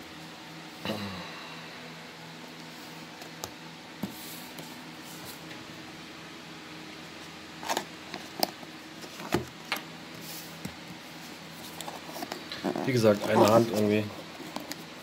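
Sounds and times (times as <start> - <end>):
low steady hum: 0.0 - 15.0
cardboard box scraping: 11.9 - 14.1.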